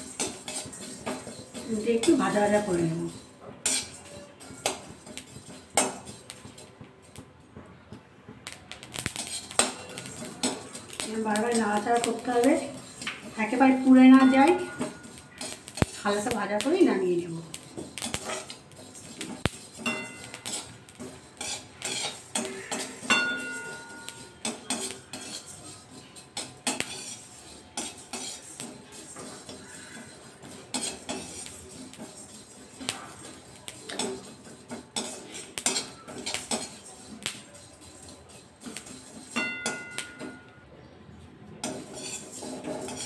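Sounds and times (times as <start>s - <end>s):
metal spatula scraping metal pan: 0.0s - 7.9s, 8.7s - 40.6s, 41.6s - 43.0s.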